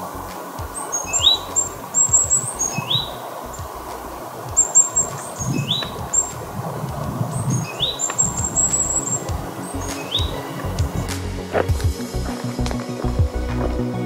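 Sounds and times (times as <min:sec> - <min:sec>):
high bird chirps: 0:00.7 - 0:11.3
rising bird whistle: 0:00.8 - 0:06.5, 0:07.3 - 0:11.3.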